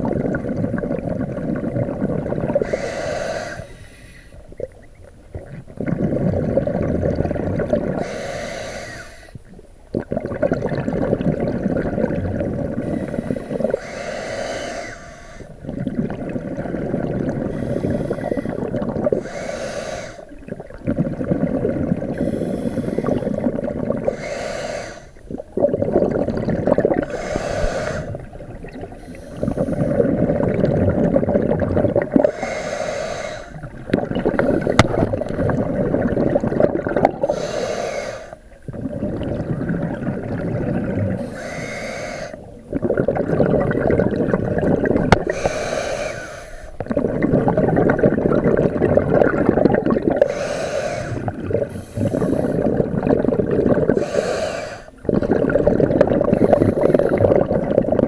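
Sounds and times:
exhaled bubbles rumbling: 0:00.0 - 0:58.0
regulator hiss on inhale: 0:02.5 - 0:04.8, 0:07.9 - 0:09.7, 0:12.5 - 0:15.6, 0:16.9 - 0:20.5, 0:22.0 - 0:25.5, 0:27.0 - 0:30.5, 0:32.1 - 0:35.6, 0:37.0 - 0:39.4, 0:41.0 - 0:42.8, 0:45.1 - 0:47.3, 0:50.2 - 0:53.1, 0:53.8 - 0:55.0, 0:56.2 - 0:57.6.

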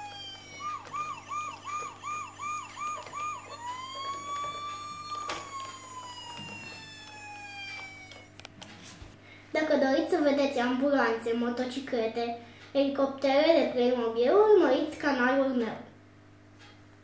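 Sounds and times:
electronic toy siren: 0:00.0 - 0:08.5.

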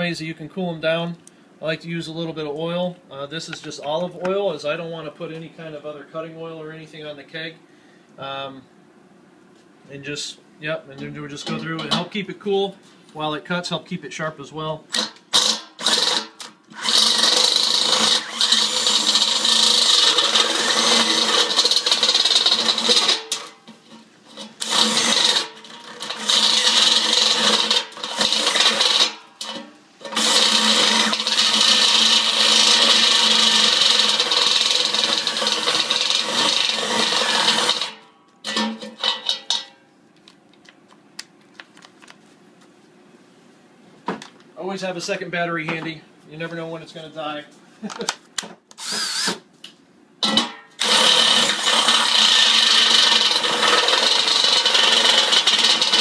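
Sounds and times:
cordless drill cutting steel: 0:14.9 - 0:23.4, 0:24.6 - 0:38.0, 0:48.8 - 0:49.4, 0:50.8 - 0:56.0.

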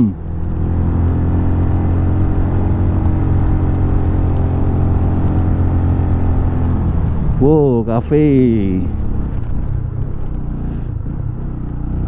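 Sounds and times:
motorcycle engine running steadily: 0:00.0 - 0:12.0.

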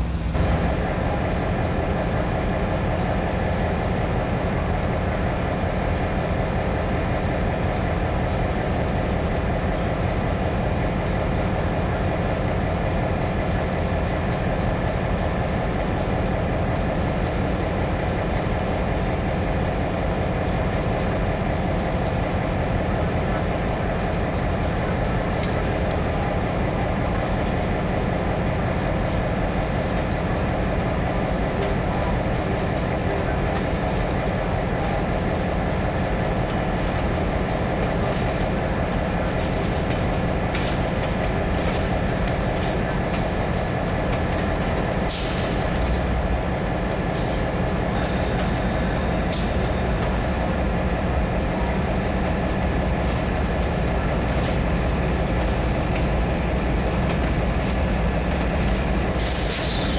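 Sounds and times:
train wheels rumbling on rail: 0:00.0 - 0:59.9
wheels clicking over rail joints: 0:08.5 - 0:50.5
sharp hiss or clank: 0:45.1 - 0:45.8, 0:59.2 - 0:59.9
high wheel squeal: 0:47.2 - 0:49.3, 0:59.3 - 0:59.9.

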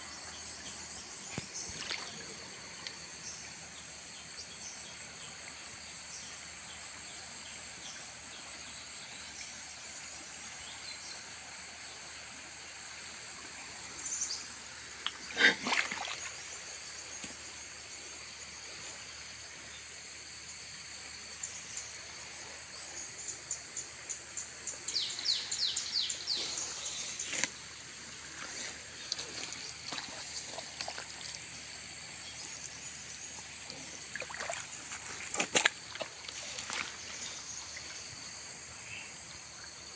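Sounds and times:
high-pitched insect chorus: 0:00.0 - 0:39.9
fast-flowing river: 0:27.8 - 0:37.9
footsteps on muddy ground: 0:28.3 - 0:31.4, 0:34.2 - 0:37.5.

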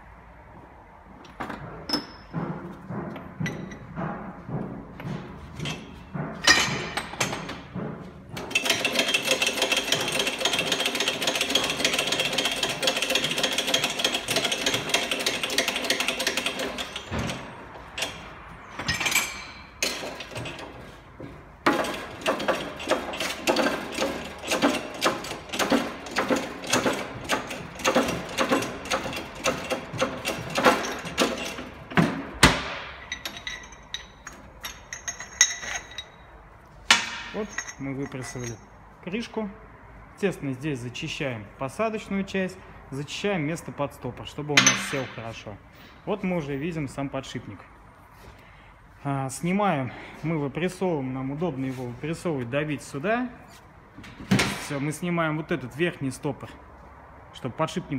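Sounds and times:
rapid metallic clicks and knocks: 0:01.3 - 0:18.2, 0:21.6 - 0:36.1
shop press rattling: 0:01.4 - 0:20.8, 0:21.6 - 0:36.2.

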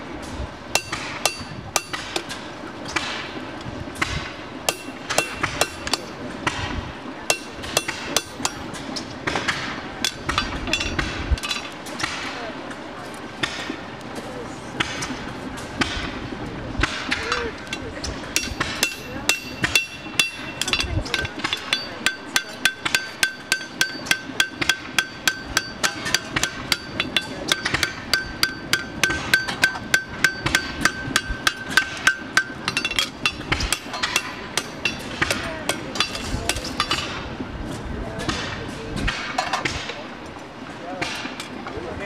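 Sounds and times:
hammer striking steel on anvil: 0:00.7 - 0:03.4, 0:04.0 - 0:06.7, 0:07.3 - 0:12.4, 0:16.8 - 0:37.2.

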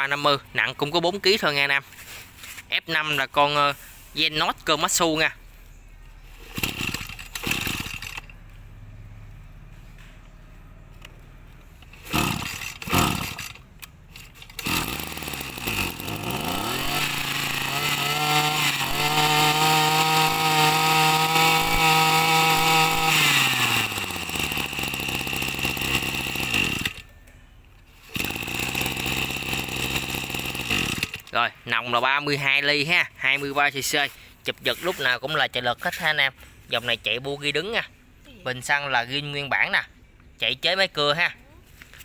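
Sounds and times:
brush cutter engine revving: 0:06.2 - 0:08.6, 0:11.0 - 0:27.2, 0:27.9 - 0:31.4
starter cord pulls: 0:06.4 - 0:08.5, 0:10.9 - 0:27.1, 0:28.0 - 0:31.4.

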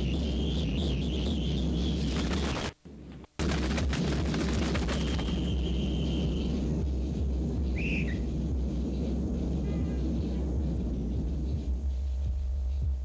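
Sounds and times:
tape hiss: 0:00.0 - 0:13.0
deep steady hum: 0:02.9 - 0:13.0
thin whistle-like tone: 0:05.0 - 0:06.7, 0:07.6 - 0:08.4.

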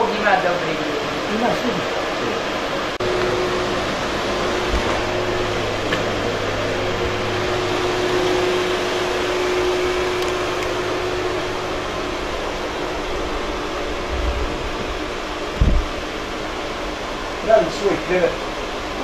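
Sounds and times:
steady rushing hiss: 0:00.0 - 0:19.0
low hum: 0:01.9 - 0:19.0
low bumps: 0:12.3 - 0:16.2.

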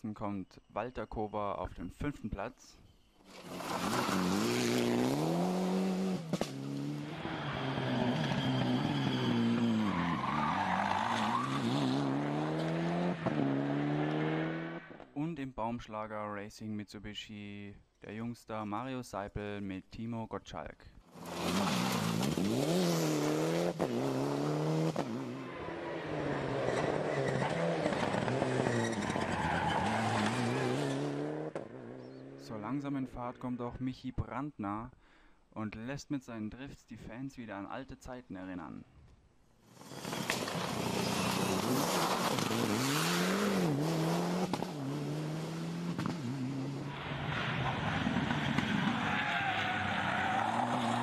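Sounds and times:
rally car engine revving: 0:03.4 - 0:15.0, 0:21.2 - 0:32.4, 0:39.8 - 0:47.0.

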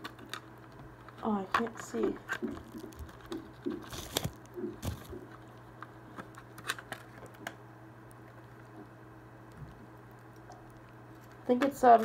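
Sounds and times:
steady low hum: 0:00.0 - 0:12.0
bubble wrap crinkling: 0:02.1 - 0:05.6.

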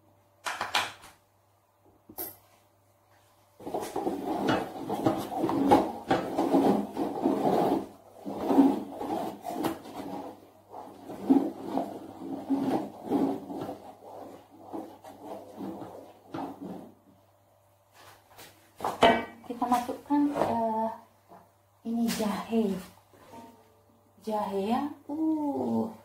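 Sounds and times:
wooden spatula scraping wok: 0:03.6 - 0:17.1.

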